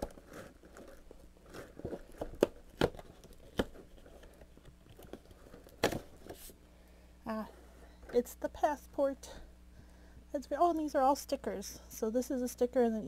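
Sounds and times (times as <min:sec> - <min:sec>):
paper rustling: 0:00.0 - 0:06.6.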